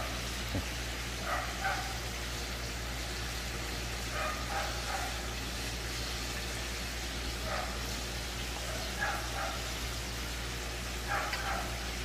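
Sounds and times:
chicken deep-frying in oil: 0.0 - 12.0
faint dog barking: 1.2 - 2.0, 4.1 - 5.3, 7.4 - 7.9, 8.6 - 9.8, 11.0 - 12.0.

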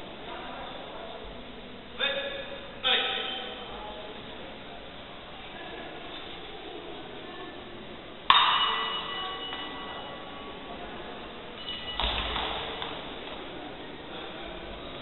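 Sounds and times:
fencing blades clashing: 8.3 - 10.4, 11.6 - 13.4.

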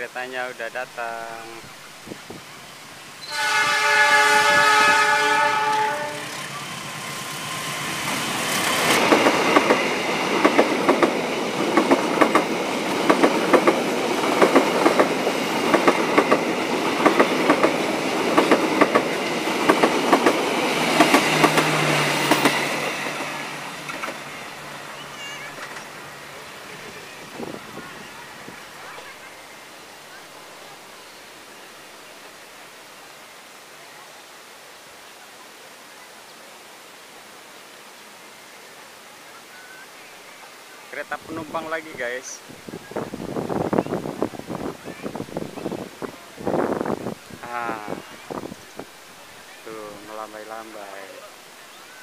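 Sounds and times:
diesel locomotive horn: 3.2 - 6.5
train wheels clicking on rail joints: 6.2 - 24.3.

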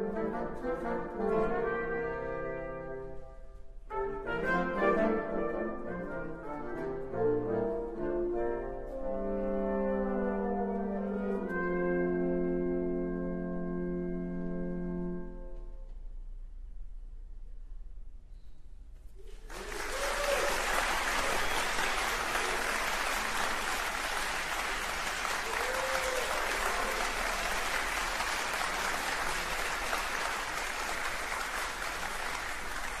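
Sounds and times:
audience applause: 19.2 - 33.0.

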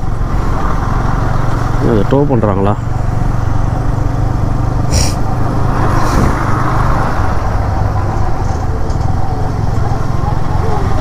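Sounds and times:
motorcycle engine running: 0.0 - 11.0
road and wind noise: 0.0 - 11.0
short hiss: 4.9 - 5.2.

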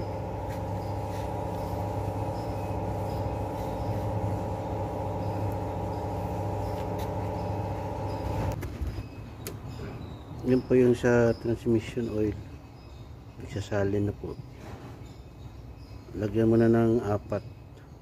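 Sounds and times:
machine humming: 0.0 - 8.6.

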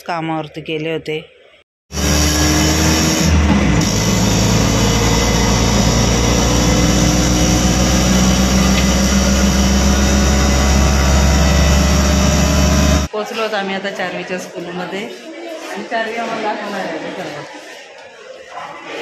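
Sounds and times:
auto-rickshaw engine running: 1.9 - 13.1
road noise: 1.9 - 13.1.

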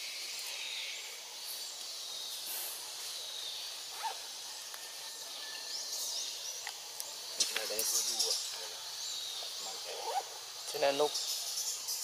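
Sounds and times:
forest insects droning: 0.0 - 12.0.

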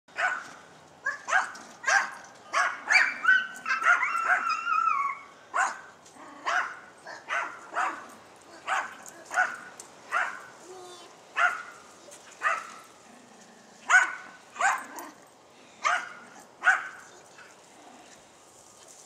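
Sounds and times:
dog barking: 0.2 - 4.6, 5.6 - 5.8, 6.4 - 10.4, 11.4 - 11.7, 12.4 - 12.8, 13.9 - 15.1, 15.8 - 17.0.

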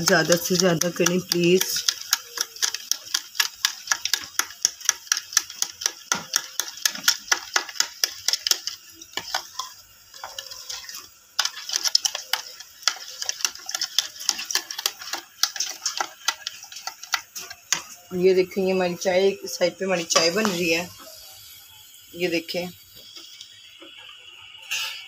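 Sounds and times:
spoon stirring in ceramic bowl: 0.0 - 18.1.

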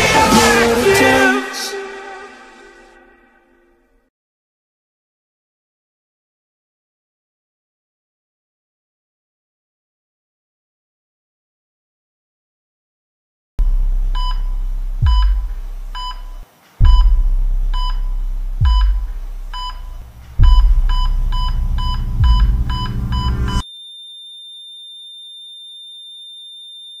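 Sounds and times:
short electronic beeps: 13.6 - 17.2, 17.8 - 27.0
deep bass booms: 13.6 - 23.6
steady high tone: 13.6 - 23.8.

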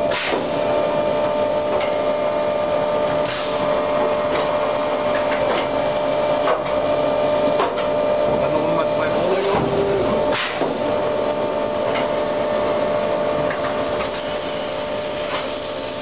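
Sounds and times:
drilling machine whine: 0.0 - 16.0.

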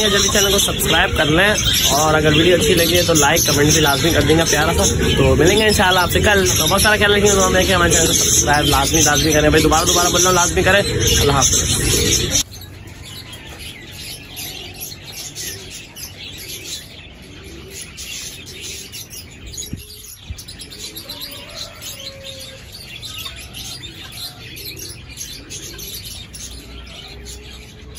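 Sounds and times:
birds chirping and twittering: 0.0 - 27.9
low gliding bird calls: 0.0 - 27.9.

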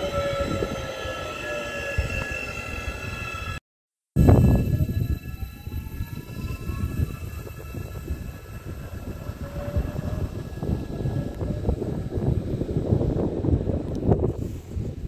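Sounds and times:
electric traction whine: 0.0 - 3.6, 4.2 - 14.2
train wheel rumble and clatter: 4.6 - 15.0.

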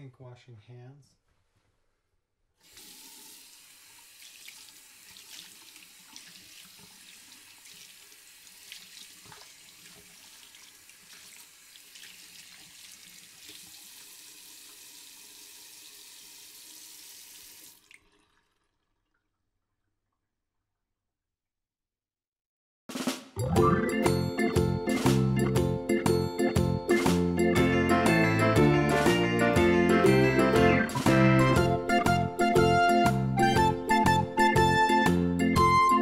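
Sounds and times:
tap water running into sink: 2.6 - 19.4.

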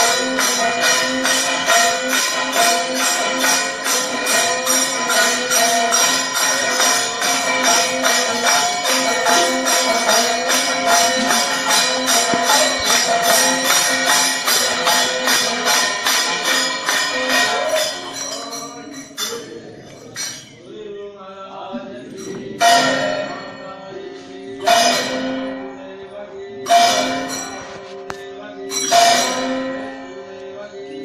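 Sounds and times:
ringing metal percussion: 0.0 - 20.8, 21.8 - 31.0
sustained held tones: 6.2 - 14.8.

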